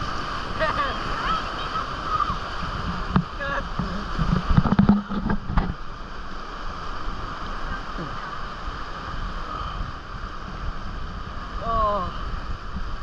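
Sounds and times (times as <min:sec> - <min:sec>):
whitewater rapids rushing: 0:00.0 - 0:13.0
loud knocks and thumps: 0:03.0 - 0:05.8.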